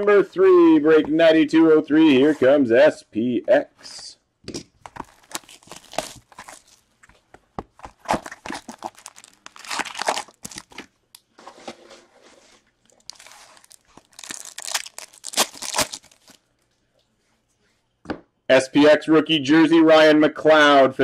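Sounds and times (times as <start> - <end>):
shrink wrap tearing and crinkling: 4.8 - 6.9, 7.8 - 10.9, 12.9 - 16.5
foil packs tearing: 4.9 - 6.8, 8.0 - 10.9, 13.0 - 16.4.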